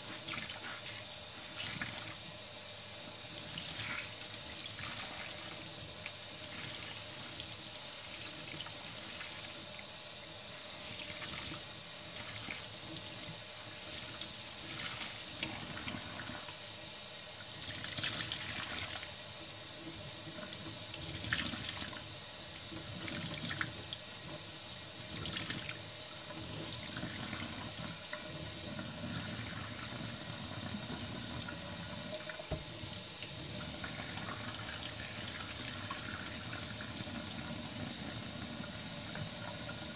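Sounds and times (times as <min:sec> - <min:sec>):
tap water running into sink: 0:03.2 - 0:16.7, 0:17.3 - 0:39.9.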